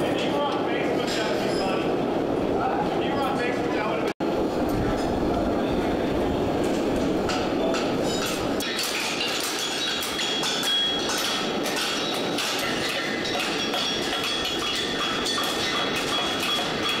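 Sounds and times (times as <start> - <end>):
steady rushing noise: 1.7 - 8.7
hammer ringing on anvil: 8.1 - 17.0.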